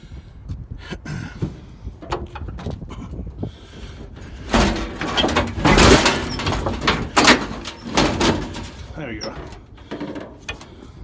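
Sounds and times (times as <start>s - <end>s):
sheet metal knocks and scrapes: 4.4s - 10.4s.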